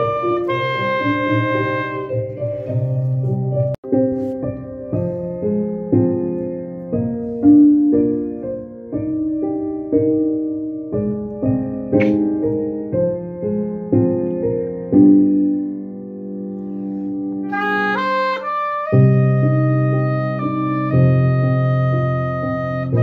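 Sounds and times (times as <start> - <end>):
piano playing chords: 0.0 - 23.0.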